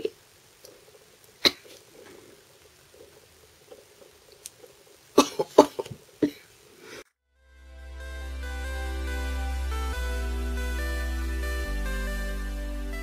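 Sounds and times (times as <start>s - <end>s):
faint rustling: 0.5s - 7.1s
background music: 7.4s - 13.0s.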